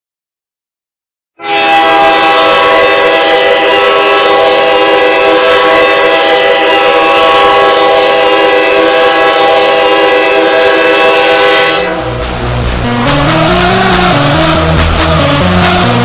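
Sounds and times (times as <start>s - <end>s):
goal horn blaring: 1.4s - 12.1s.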